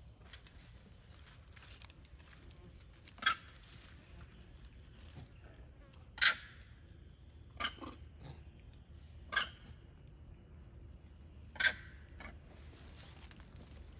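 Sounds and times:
macaque calls: 0:06.2 - 0:06.6, 0:07.6 - 0:08.1, 0:11.5 - 0:12.4.

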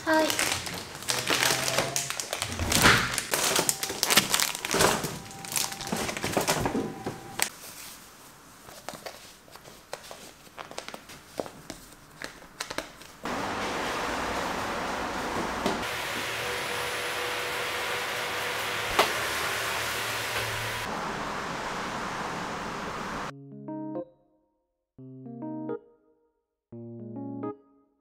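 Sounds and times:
plastic packaging crinkling: 0:00.0 - 0:08.0, 0:08.6 - 0:13.2
steady hiss: 0:15.8 - 0:23.3.

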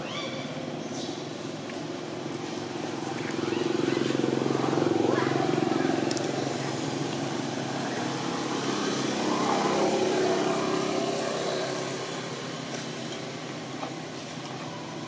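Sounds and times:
vehicle engine passing by: 0:02.2 - 0:13.5.

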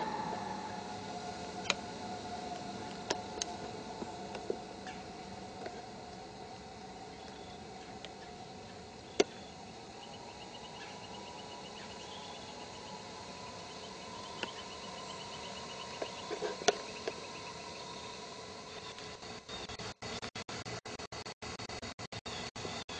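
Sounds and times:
fast high chirping trill: 0:00.0 - 0:01.4
outdoor background hiss: 0:00.0 - 0:20.2.

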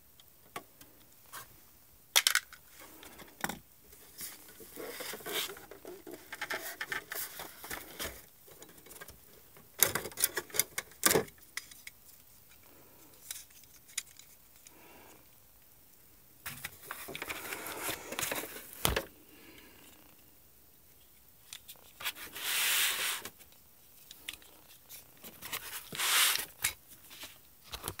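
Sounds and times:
plastic rubbing and scraping: 0:02.8 - 0:11.9, 0:16.5 - 0:19.1, 0:21.6 - 0:23.5, 0:24.2 - 0:28.0.

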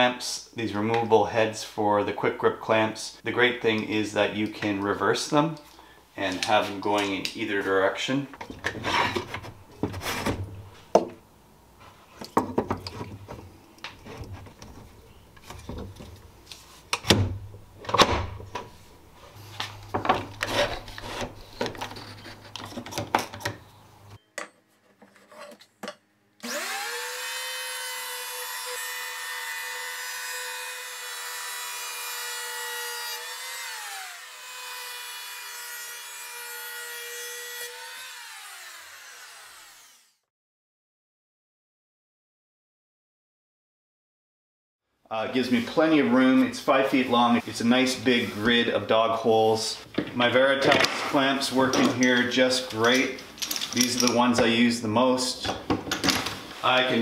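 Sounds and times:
electric planer running: 0:26.4 - 0:40.2.

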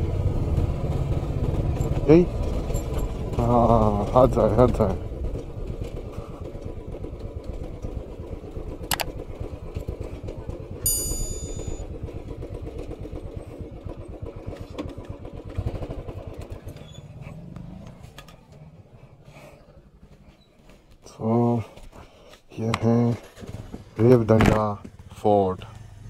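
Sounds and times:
small motorcycle engine running: 0:00.0 - 0:20.4, 0:22.8 - 0:26.0
high-pitched beep: 0:10.9 - 0:11.8.

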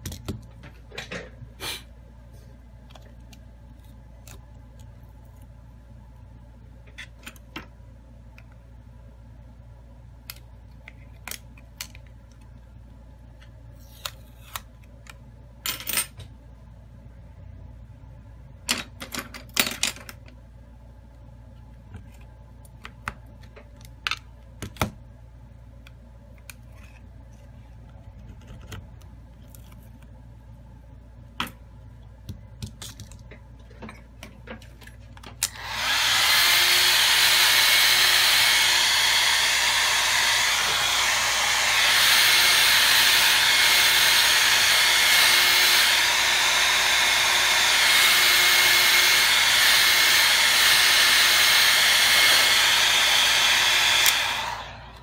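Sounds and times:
heat gun blowing: 0:35.4 - 0:55.0.

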